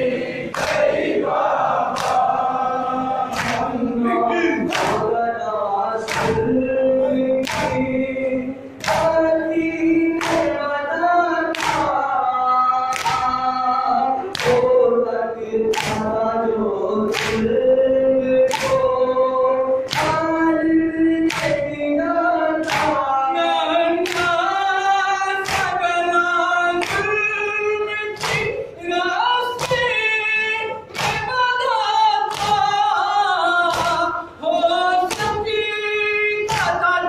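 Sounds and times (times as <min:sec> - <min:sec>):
men chanting a lament: 0:00.0 - 0:37.0.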